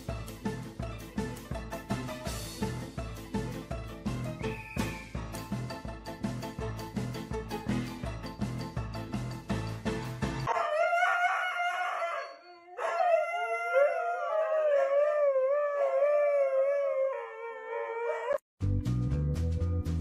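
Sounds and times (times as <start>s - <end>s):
upbeat background music: 0.0s - 10.5s
dogs howling: 10.5s - 18.4s
husky howling: 10.5s - 18.4s.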